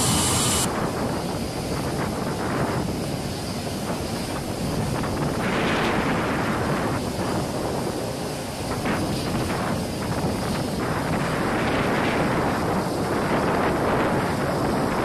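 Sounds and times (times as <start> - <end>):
loud high hiss: 0.0 - 1.6
wind buffeting the microphone: 0.0 - 15.0.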